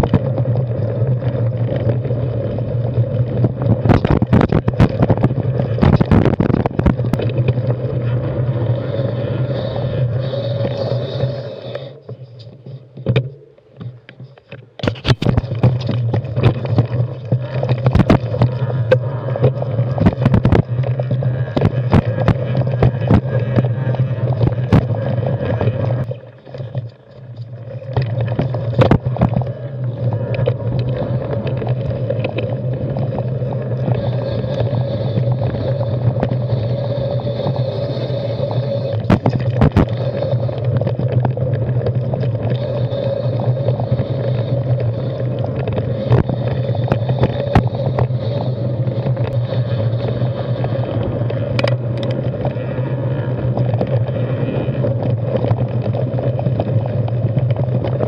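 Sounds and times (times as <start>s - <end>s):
bike tyres rolling over dirt: 0.0s - 13.3s, 14.2s - 58.0s
clicks and knocks from rocks: 3.7s - 7.6s, 13.0s - 23.7s.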